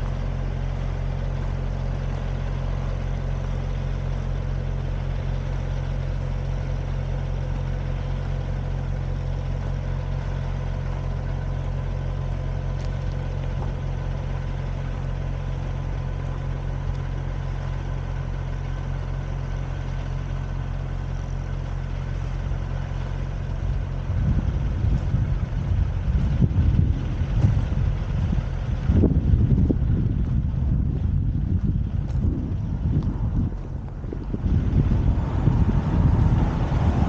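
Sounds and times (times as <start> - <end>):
vehicle engine running steadily: 0.0 - 37.0
wind buffeting microphone: 23.6 - 37.0.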